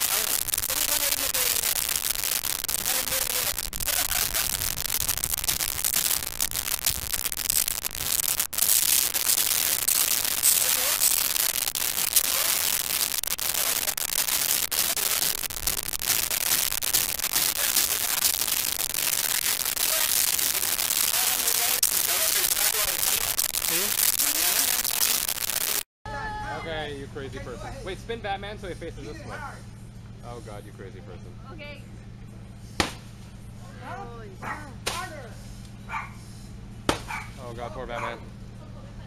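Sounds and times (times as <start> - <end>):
crackling hiss with clicks: 0.0 - 25.9.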